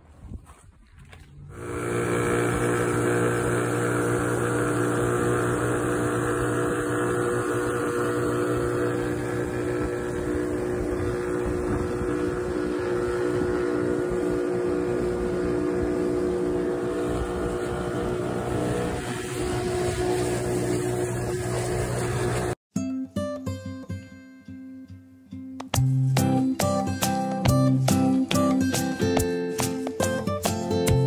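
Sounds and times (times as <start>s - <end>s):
outboard motor running: 1.5s - 22.6s
water rushing from wake: 1.6s - 22.6s.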